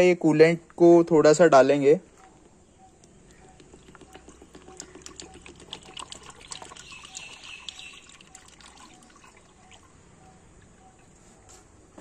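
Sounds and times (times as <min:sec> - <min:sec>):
liquid pouring into funnel: 0:03.3 - 0:10.0.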